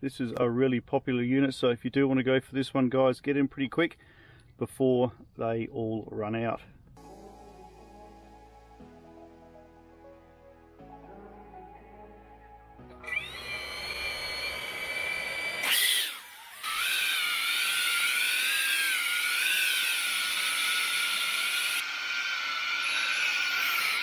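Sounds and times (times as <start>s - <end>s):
drone motors whining: 13.0s - 24.0s.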